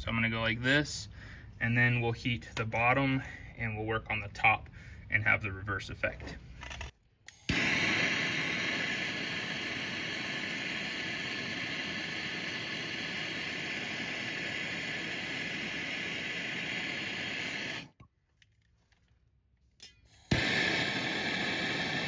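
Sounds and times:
gas torch flame hissing: 7.3s - 18.0s, 20.1s - 22.0s.

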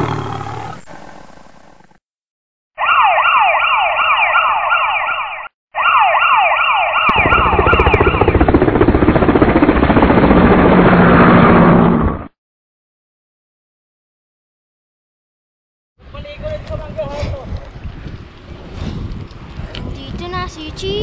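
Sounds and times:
siren wailing: 2.8s - 8.4s.

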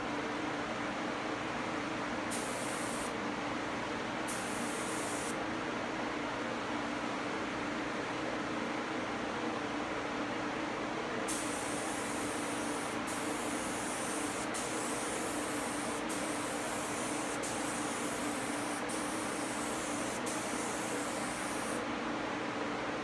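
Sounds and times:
spray gun hissing: 2.3s - 3.1s, 4.3s - 5.4s, 11.3s - 21.8s
steady hum: 11.2s - 22.1s.

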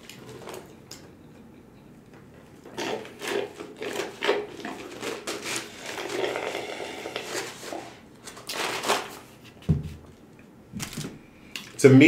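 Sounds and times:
sucking and swallowing through straw: 2.7s - 8.1s.

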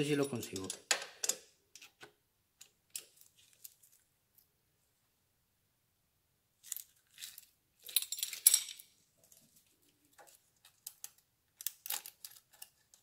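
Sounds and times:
metal tools clinking: 0.0s - 1.4s, 7.9s - 9.4s.

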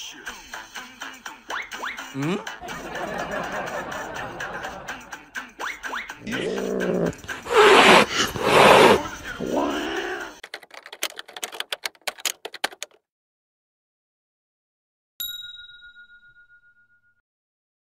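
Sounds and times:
rapid sharp clicks: 10.4s - 13.0s
notification bell ding: 15.2s - 17.2s.

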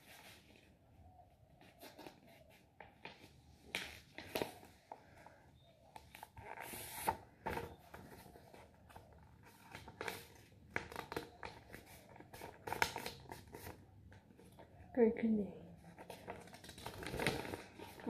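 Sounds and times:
paper crinkling and rustling: 5.9s - 14.7s, 15.8s - 18.0s.

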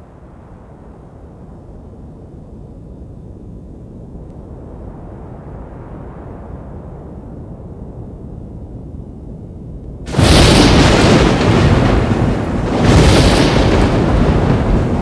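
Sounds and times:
thunder crack and roll: 10.0s - 15.0s.

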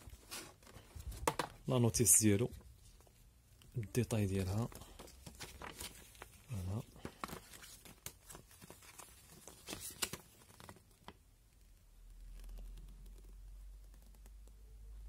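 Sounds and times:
paper rustling and crinkling: 0.0s - 11.2s.

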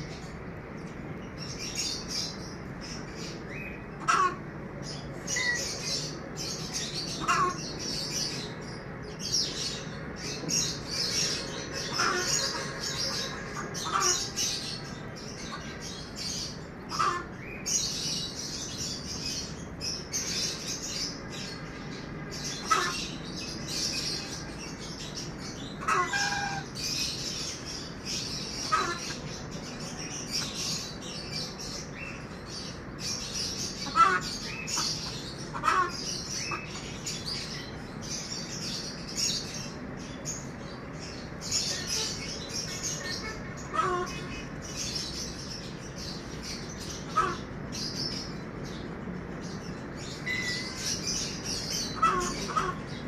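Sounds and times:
small birds chirping: 0.0s - 53.0s
chickens clucking: 4.0s - 4.4s, 7.2s - 7.6s, 11.2s - 14.5s, 16.9s - 17.3s, 25.8s - 26.6s, 28.6s - 29.3s, 33.8s - 36.8s, 42.9s - 44.6s, 50.2s - 53.0s.

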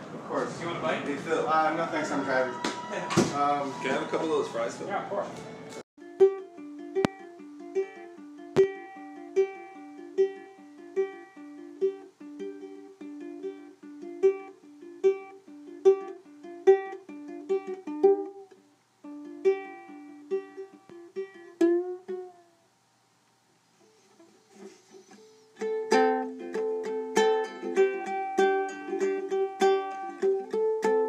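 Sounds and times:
ukulele plucked notes: 6.0s - 22.6s, 23.9s - 31.0s.

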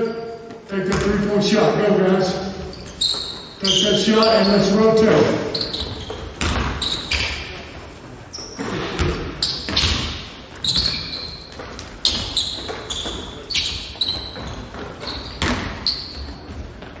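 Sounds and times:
sneakers squeaking: 0.0s - 17.0s
basketball bouncing on hardwood: 5.8s - 7.2s, 14.2s - 15.8s.

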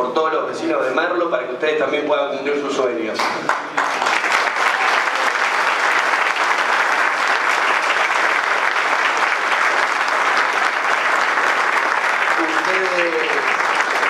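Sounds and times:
crowd applauding: 3.2s - 14.0s.

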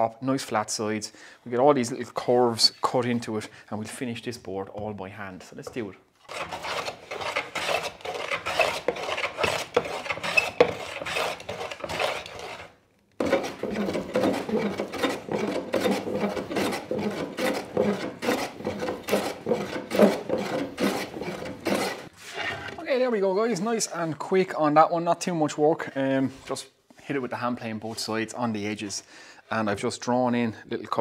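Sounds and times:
hand plane shaving wood: 6.3s - 22.8s.

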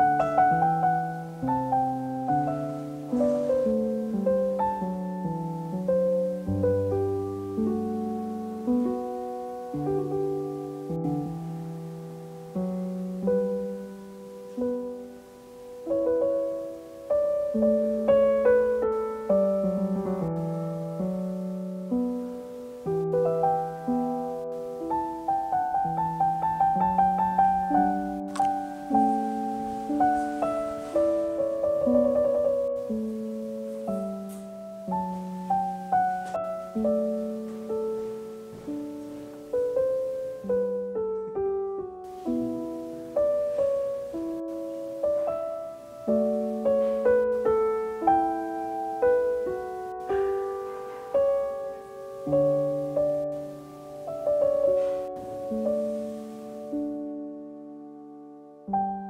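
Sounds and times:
slow piano music: 0.0s - 59.0s.

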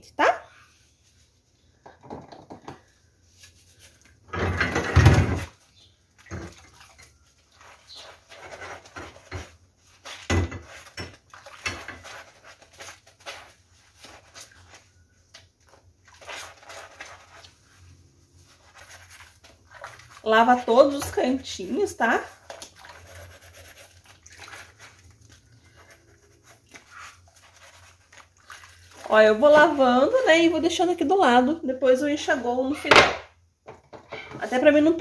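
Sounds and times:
sponge scrubbing grates: 7.4s - 14.9s, 15.6s - 17.8s, 18.4s - 30.6s.

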